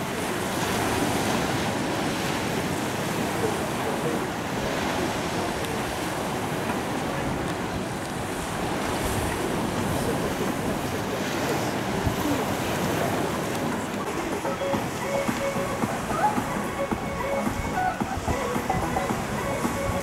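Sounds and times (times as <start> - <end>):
waves breaking on pebble beach: 0.0 - 20.0.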